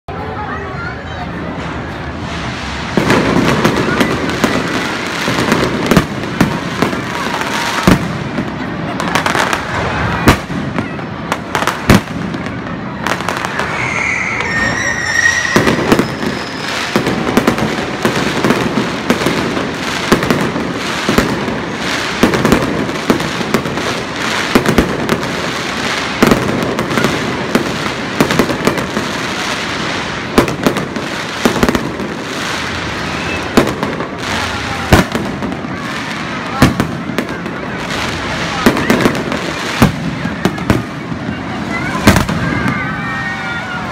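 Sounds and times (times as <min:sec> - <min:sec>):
firework crackle: 0:00.1 - 0:43.9
firework bangs: 0:01.4 - 0:43.9.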